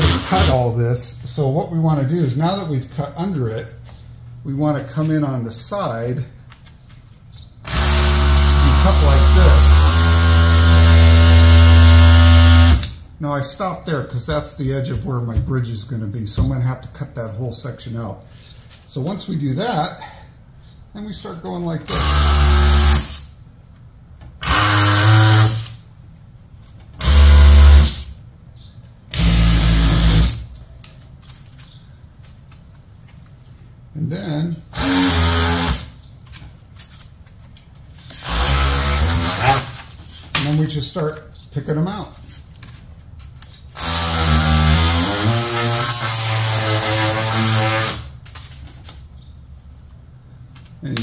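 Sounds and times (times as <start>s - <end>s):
oscillating multi-tool buzzing: 7.6s - 12.9s, 24.4s - 25.7s, 27.0s - 28.1s, 34.7s - 36.0s, 38.1s - 39.9s.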